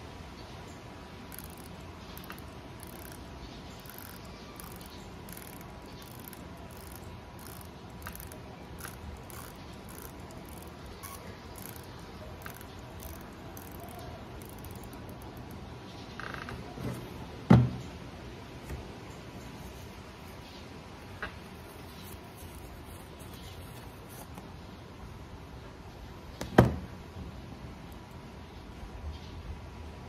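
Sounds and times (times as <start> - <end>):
watch bezel ratcheting clicks: 1.3 - 15.6.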